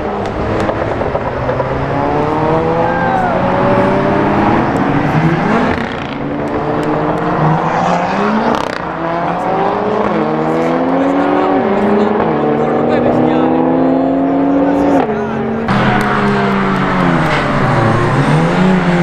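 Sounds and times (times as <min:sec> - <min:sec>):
race car engines revving: 0:00.0 - 0:19.0.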